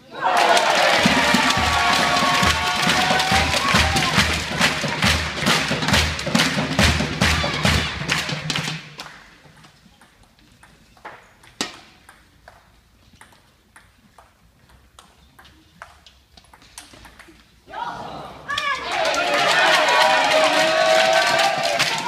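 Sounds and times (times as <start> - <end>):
crowd noise: 0.0 - 9.0, 17.6 - 22.0.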